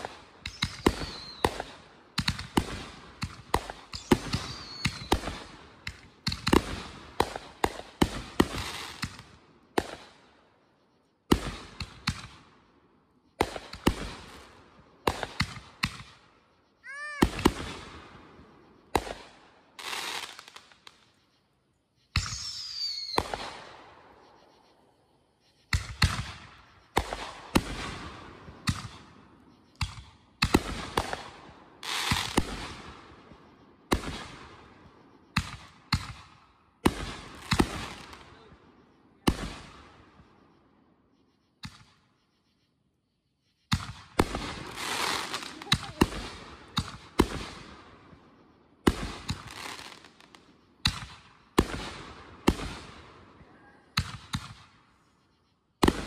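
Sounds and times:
fireworks bangs: 0.0s - 10.3s, 13.4s - 21.1s, 22.1s - 24.2s, 25.7s - 40.4s, 43.7s - 54.9s, 55.8s - 56.0s
fireworks whistles: 0.0s - 12.5s, 13.1s - 42.8s, 43.4s - 56.0s.

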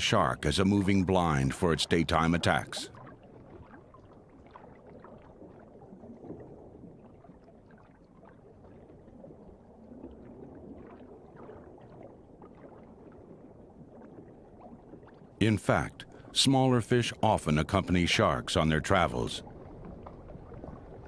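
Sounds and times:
crackles and gurgles: 0.0s - 21.0s
low underwater rumble: 2.1s - 16.3s, 19.3s - 21.0s.

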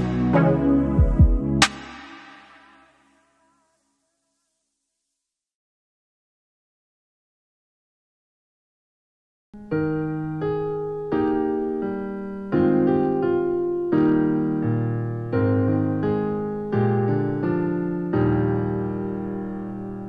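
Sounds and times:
soft piano chords: 9.6s - 20.0s.

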